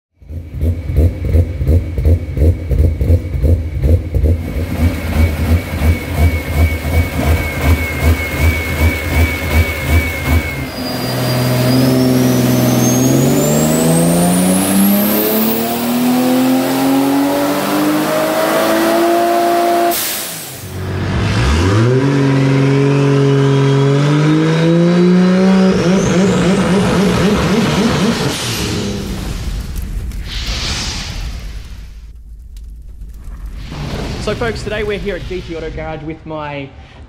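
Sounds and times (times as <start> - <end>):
car engine idling and revving: 0.1 - 29.8
turbo whine: 0.2 - 18.3.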